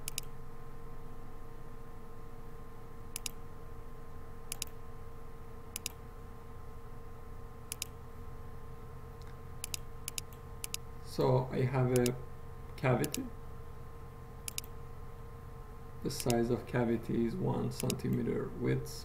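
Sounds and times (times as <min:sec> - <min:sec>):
steady electrical hum: 0:00.0 - 0:19.0
computer mouse double clicks: 0:04.5 - 0:04.8, 0:05.8 - 0:06.0, 0:14.5 - 0:14.7.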